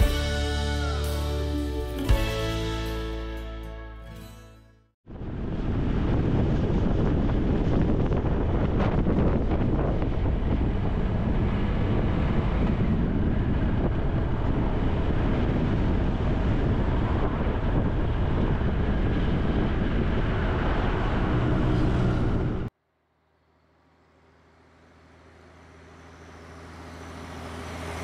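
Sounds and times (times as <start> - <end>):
motorcycle engine running: 0.0 - 1.1
wind buffeting microphone: 5.1 - 22.7
motorcycle passing: 5.6 - 22.7, 24.2 - 28.0.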